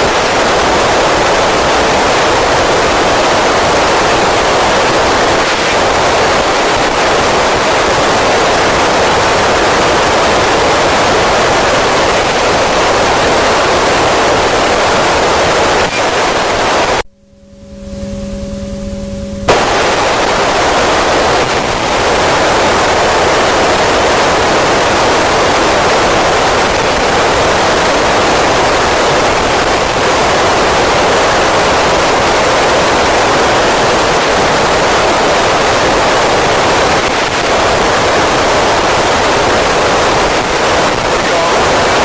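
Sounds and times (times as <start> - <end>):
radio static hiss: 0.0 - 17.1, 17.9 - 42.0
low steady hum: 16.6 - 21.6.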